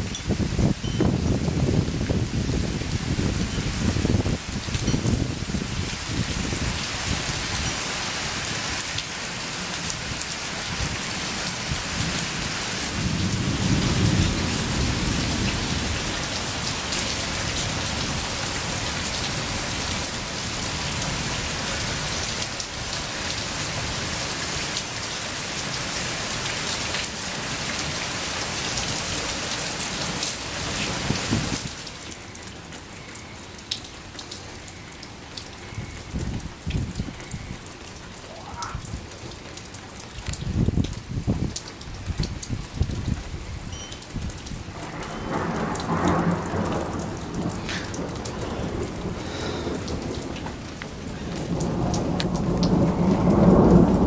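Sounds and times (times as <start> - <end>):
rain falling: 0.0 - 54.0
thunder rumble: 12.1 - 17.3, 44.2 - 54.0.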